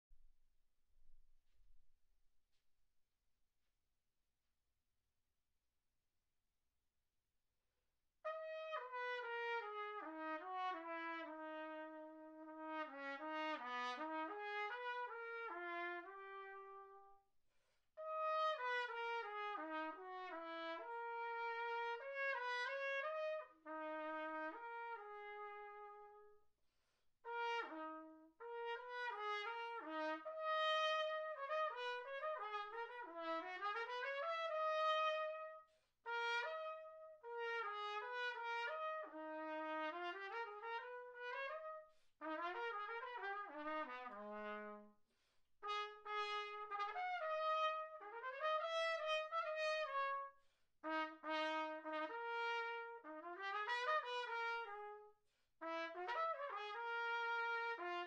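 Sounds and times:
solo trumpet melody: 8.3s - 17.2s, 18.0s - 26.4s, 27.2s - 45.0s, 45.6s - 58.0s.

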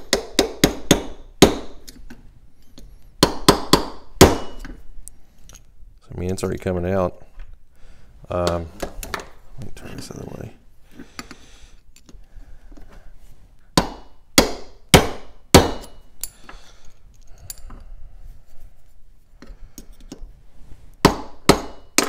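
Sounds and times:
hammer striking metal punch: 3.2s - 4.7s, 13.8s - 16.0s, 21.0s - 22.0s.

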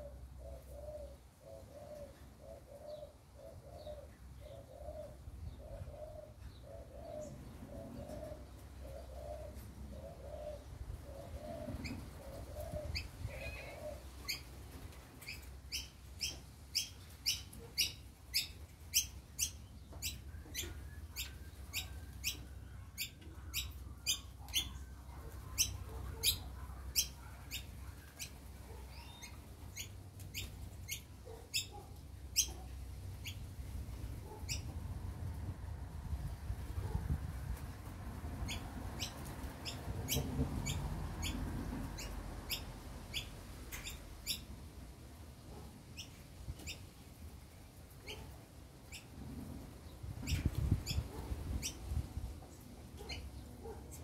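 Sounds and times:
dove cooing: 0.0s - 14.5s
bird chirping: 25.5s - 31.8s.

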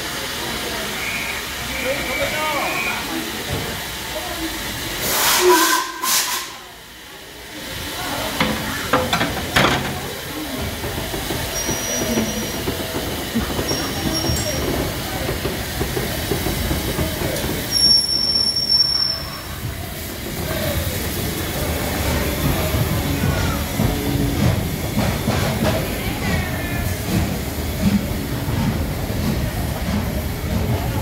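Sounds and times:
steam locomotive chuffing: 0.0s - 31.0s
train rumbling: 0.0s - 31.0s
high wheel squeals: 11.5s - 12.6s, 13.6s - 14.7s, 17.6s - 19.6s.

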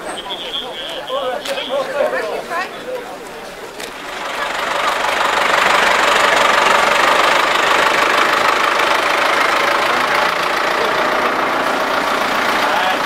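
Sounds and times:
engine running loud: 3.8s - 13.0s.

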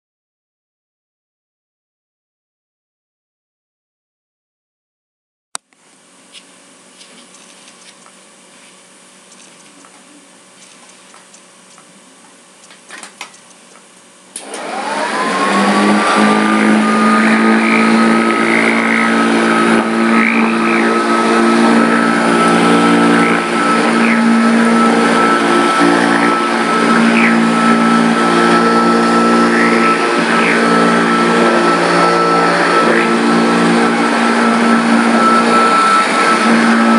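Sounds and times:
vacuum cleaner motor whining: 6.0s - 36.9s
clicks: 9.3s - 11.9s, 12.6s - 14.6s.

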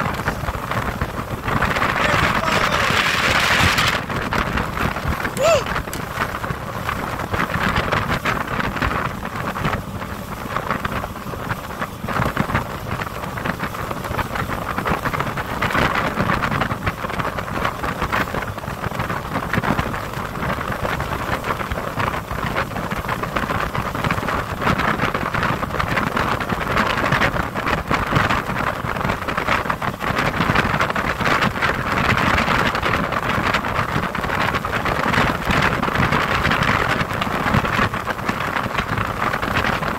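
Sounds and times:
motorboat engine and water rush: 0.0s - 39.9s
wind buffeting microphone: 0.0s - 39.9s.

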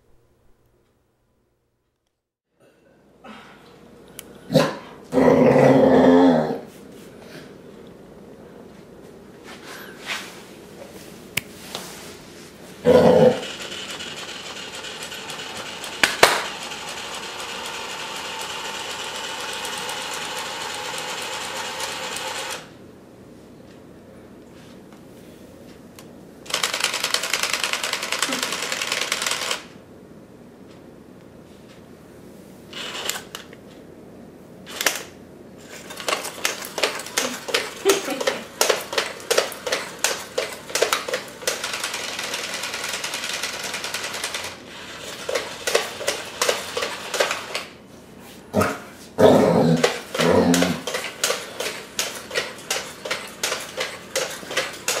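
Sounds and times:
toy robot motors whirring: 13.2s - 22.7s, 26.5s - 29.7s, 32.7s - 33.4s, 34.7s - 47.7s, 49.8s - 55.0s
plastic feet clacking on tile: 16.0s - 16.5s, 35.8s - 47.7s, 49.8s - 55.0s.

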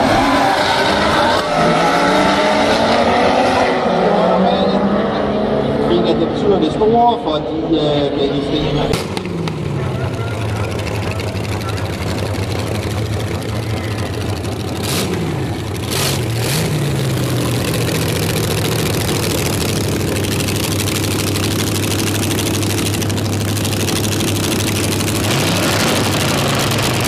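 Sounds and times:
engine throttle blips: 8.3s - 27.0s
dragster engines idling: 8.5s - 27.0s.

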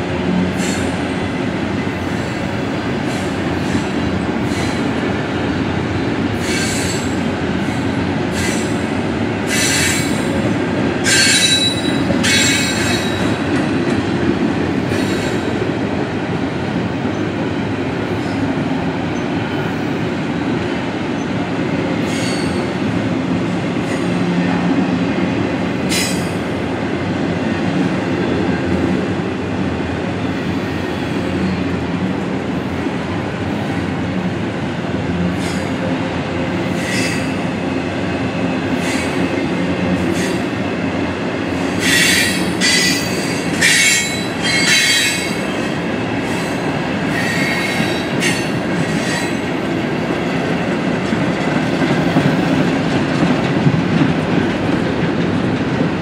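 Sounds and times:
train wheels rumbling on rail: 0.0s - 56.0s
high-pitched wheel squeals: 11.1s - 13.2s, 41.8s - 45.4s.

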